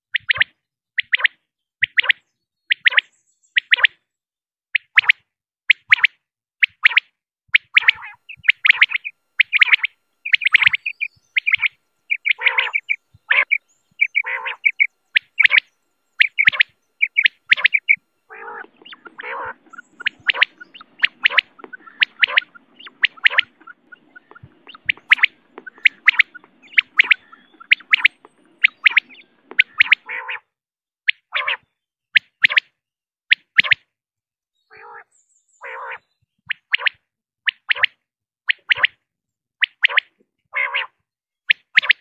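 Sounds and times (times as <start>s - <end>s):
quail calling: 5.9s - 30.5s, 31.1s - 31.7s, 34.7s - 36.1s, 39.8s - 41.0s
faint low hum: 7.8s - 30.3s.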